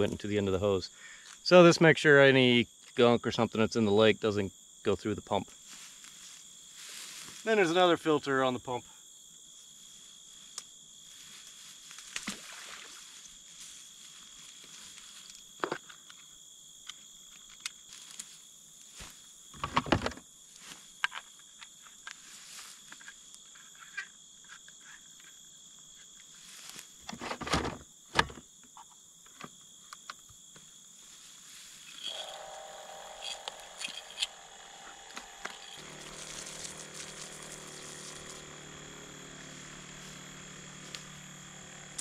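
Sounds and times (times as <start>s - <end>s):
insects trilling: 0.0s - 42.0s
steps in tall grass: 5.6s - 7.6s, 9.6s - 15.5s, 22.2s - 22.9s, 26.4s - 27.0s, 31.0s - 38.6s, 39.4s - 41.2s.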